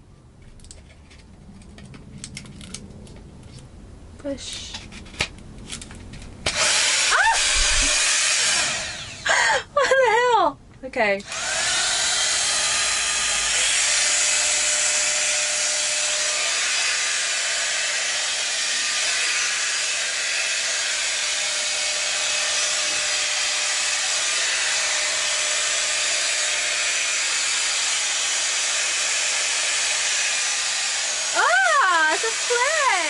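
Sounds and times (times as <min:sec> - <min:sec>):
hot air styler blowing air: 0:06.4 - 0:09.7, 0:11.2 - 0:33.0.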